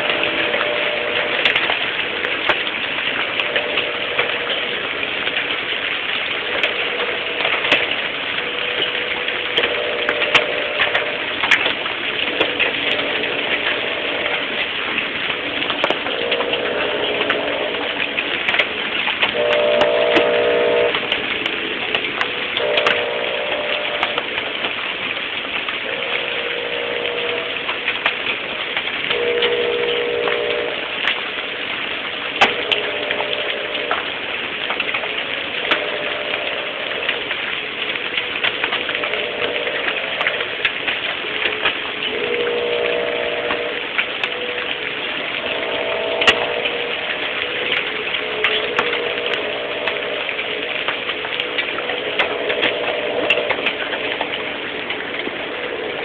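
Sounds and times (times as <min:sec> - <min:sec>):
hailstones ticking on hard surfaces: 0:00.0 - 0:56.0
heavy rain hiss: 0:00.0 - 0:56.0
pitched tone: 0:15.9 - 0:18.1, 0:19.4 - 0:21.0, 0:22.6 - 0:24.4, 0:25.9 - 0:27.7, 0:29.1 - 0:30.8, 0:42.1 - 0:44.7, 0:45.3 - 0:54.2.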